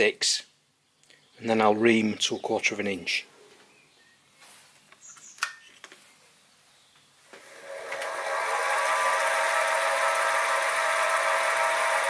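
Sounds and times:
mill spindle motor whining: 7.1s - 12.0s.

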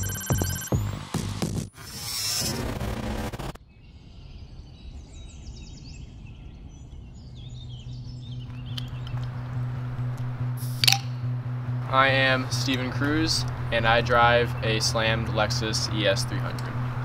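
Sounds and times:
loud burst of noise: 1.8s - 3.6s
songbirds chirping and whistling: 3.6s - 9.8s.

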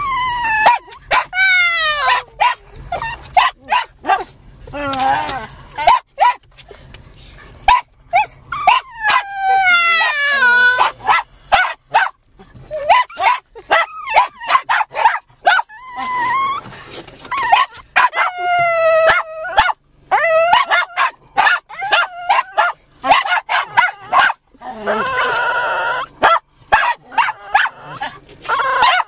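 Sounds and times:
small dogs barking and yipping: 0.0s - 29.0s
dog howl-like calls: 24.8s - 26.1s.

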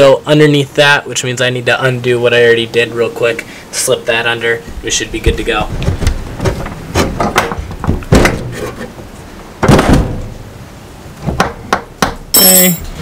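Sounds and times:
metal knocks and rattles: 5.7s - 9.0s
metal clank with short ring: 12.3s - 13.0s.

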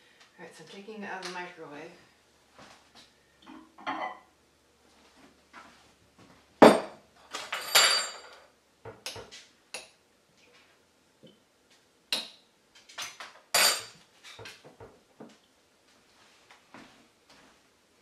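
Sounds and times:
dishes and utensils clattering: 3.5s - 4.3s, 6.6s - 9.4s, 12.9s - 14.9s.

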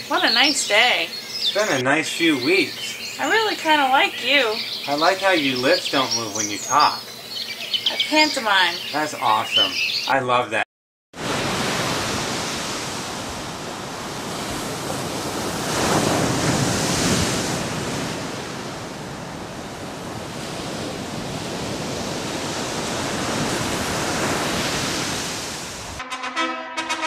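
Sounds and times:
ocean waves washing in: 11.2s - 26.0s.

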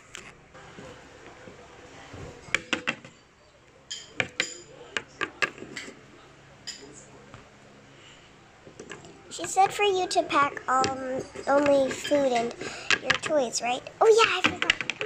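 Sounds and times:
plastic toys clicking together: 10.8s - 13.4s, 14.2s - 15.0s.

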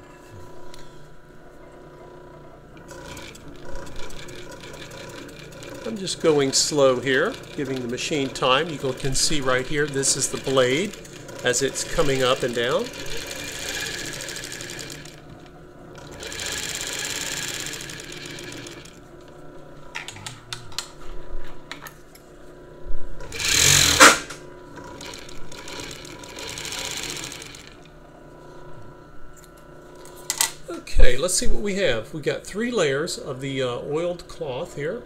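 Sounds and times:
overlock sewing machine running: 2.8s - 19.1s, 23.2s - 27.9s.

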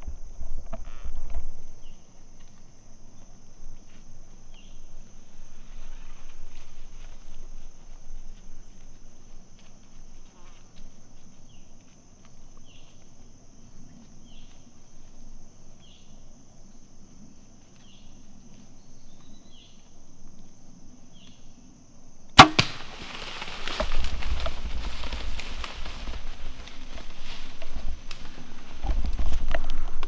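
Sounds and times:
bow string snap: 22.4s - 23.0s.

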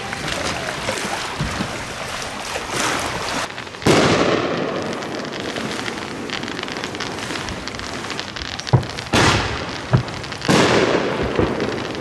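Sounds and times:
firework crackling pops: 3.4s - 12.0s
firework bang: 3.8s - 12.0s.

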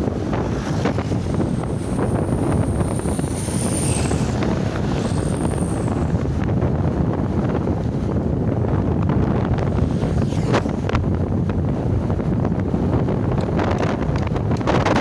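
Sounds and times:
motorcycle engine: 0.0s - 6.6s
wind buffeting microphone: 0.0s - 15.0s
thin high whine: 0.3s - 6.6s.

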